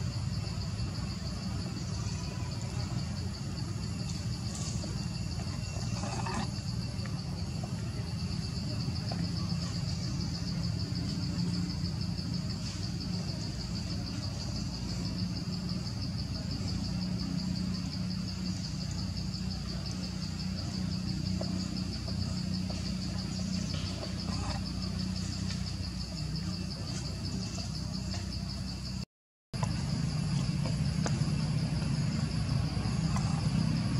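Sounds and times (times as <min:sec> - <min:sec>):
insects trilling: 0:00.0 - 0:29.0, 0:29.6 - 0:33.9.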